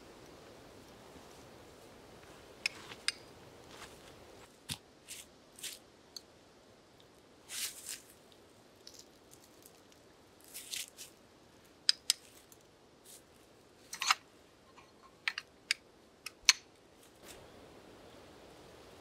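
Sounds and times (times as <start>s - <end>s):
soft rustling: 1.0s - 5.8s, 7.5s - 11.2s.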